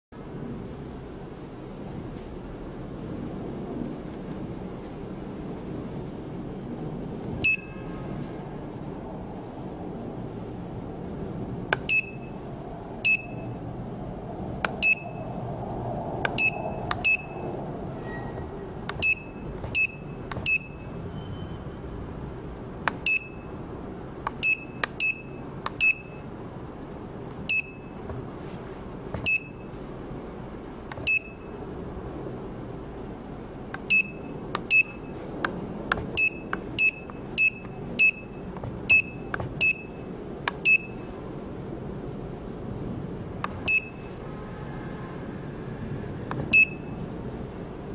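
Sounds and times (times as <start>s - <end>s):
steady low hum: 0.2s - 47.9s
touchscreen click and high beep: 7.4s - 7.8s.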